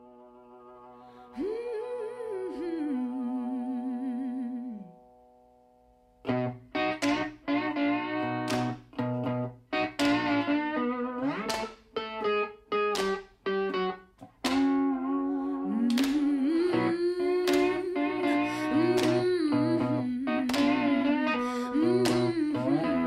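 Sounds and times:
slide guitar: 6.2s - 23.0s.

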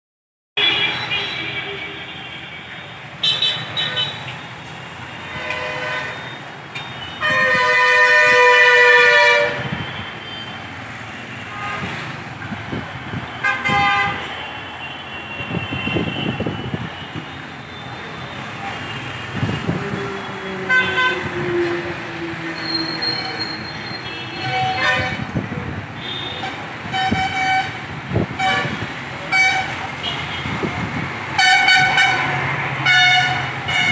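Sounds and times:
vehicle horns honking: 0.6s - 4.4s, 5.1s - 12.1s, 13.3s - 17.7s, 20.6s - 21.4s, 22.7s - 25.3s, 26.0s - 30.6s, 31.4s - 33.9s
road traffic: 0.6s - 33.9s.

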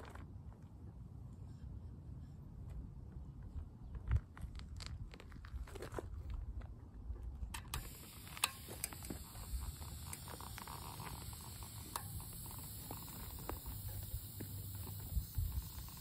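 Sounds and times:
sharp valve clicks: 7.6s - 16.0s
air hissing out of tyre valve: 7.7s - 16.0s.

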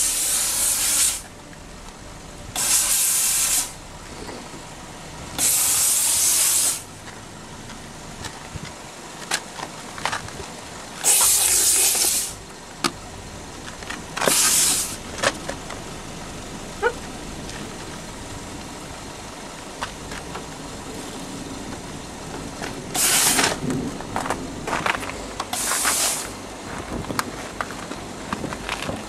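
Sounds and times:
steam cleaner blasting steam: 0.0s - 1.3s, 2.5s - 3.8s, 5.4s - 6.9s, 11.0s - 12.4s, 14.2s - 15.1s, 22.9s - 23.7s, 25.5s - 26.4s.

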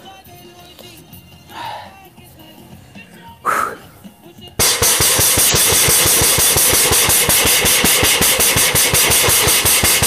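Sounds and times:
metal dish hitting head: 4.6s - 10.0s.

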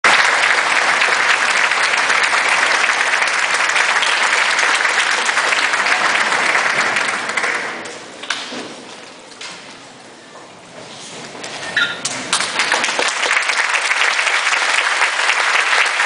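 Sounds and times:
audience applauding: 0.0s - 8.3s, 12.3s - 16.0s.

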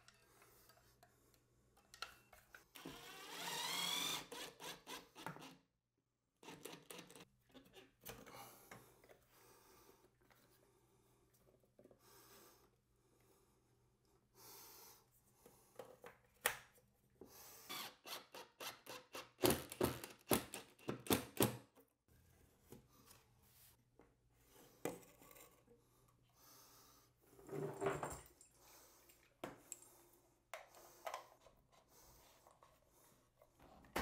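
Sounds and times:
cordless drill-driver: 2.8s - 5.5s, 17.7s - 20.1s.

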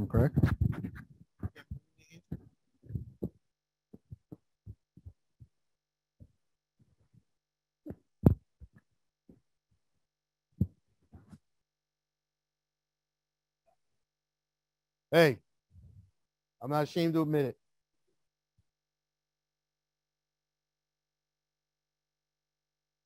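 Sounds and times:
microphone handling thumps: 0.0s - 5.2s, 7.9s - 8.8s.

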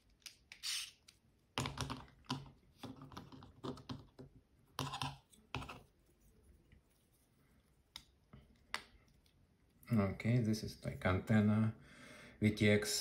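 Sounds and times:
plastic parts clicking and knocking: 1.6s - 5.8s.

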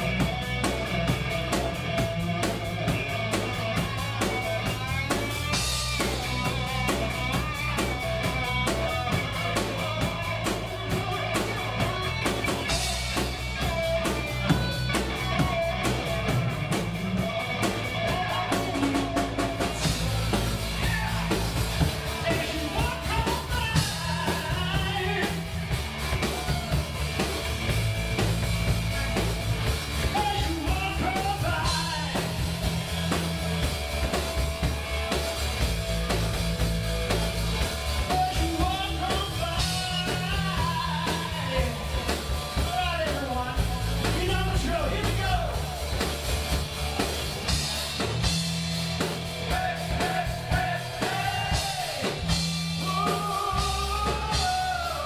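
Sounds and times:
drum kit: 0.0s - 55.0s
electric guitars: 0.0s - 55.0s
person singing: 17.8s - 25.4s, 30.0s - 32.4s, 38.0s - 45.8s, 49.5s - 55.0s.

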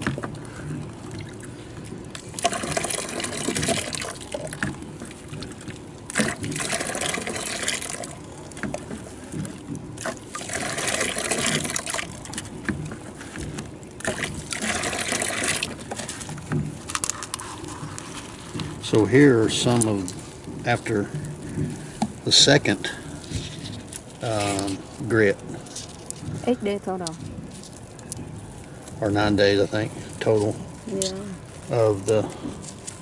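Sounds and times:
water splashing into plastic bucket: 0.0s - 24.9s
water pouring over rocks: 2.1s - 8.5s, 10.0s - 12.5s, 13.9s - 16.2s, 21.8s - 25.8s.

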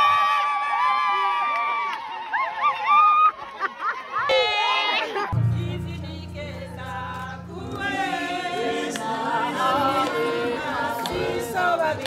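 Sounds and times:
choir singing unaccompanied: 5.2s - 12.0s.

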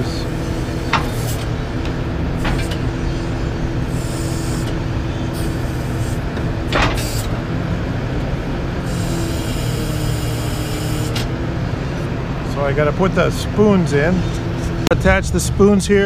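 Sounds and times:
diesel truck engine idling: 0.0s - 16.0s.

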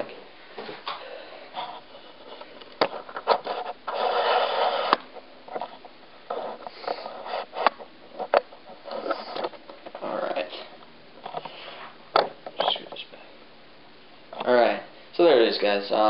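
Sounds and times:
scraping rustle: 1.5s - 12.0s.

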